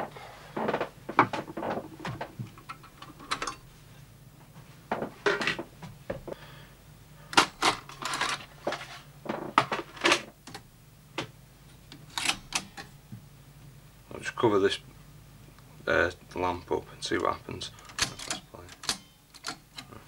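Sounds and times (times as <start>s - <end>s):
metal and plastic parts clattering: 1.4s - 3.6s, 7.4s - 10.6s.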